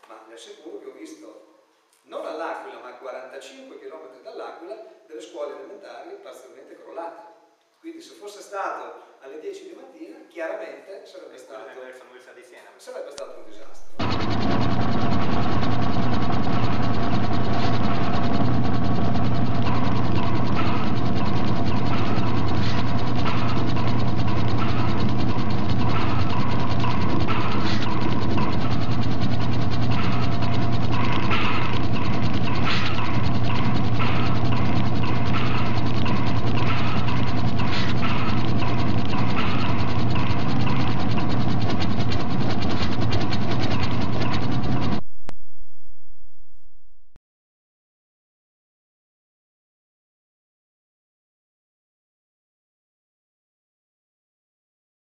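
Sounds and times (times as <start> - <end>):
steady low hum: 13.2 - 47.2
ratcheting mechanical noise: 14.0 - 45.0.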